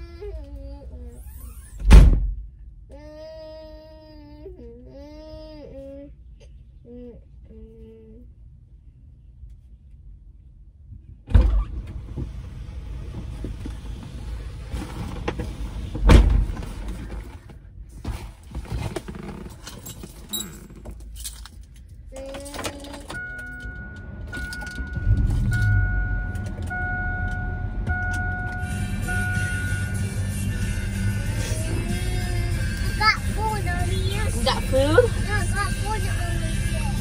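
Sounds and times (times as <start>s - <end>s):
car doors shutting: 22.6s - 30.0s
car engine running: 22.7s - 37.0s
dashboard chime: 23.2s - 30.0s.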